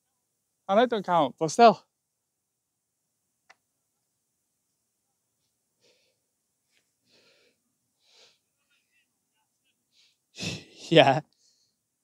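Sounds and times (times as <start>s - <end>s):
faint breathy puffs: 5.4s - 8.9s.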